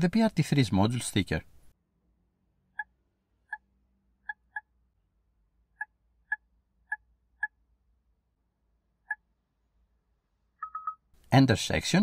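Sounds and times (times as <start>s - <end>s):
keypad beeps: 10.6s - 11.1s.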